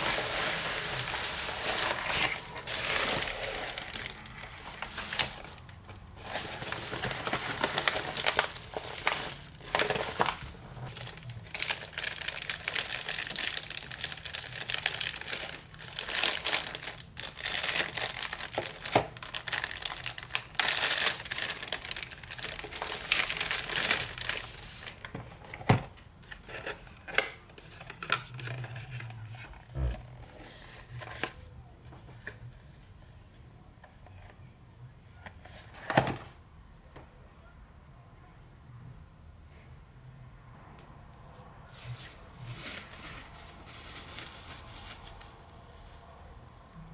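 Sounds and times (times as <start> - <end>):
plastic packaging crinkling: 0.0 - 25.1, 41.9 - 46.0
plastic tearing: 0.0 - 25.1.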